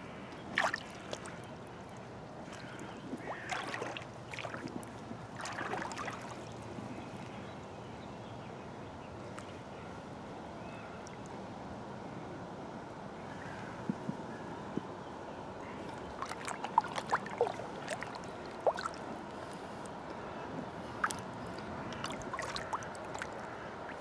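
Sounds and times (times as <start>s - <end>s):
water splashing and sloshing: 0.1s - 7.3s, 15.7s - 24.0s.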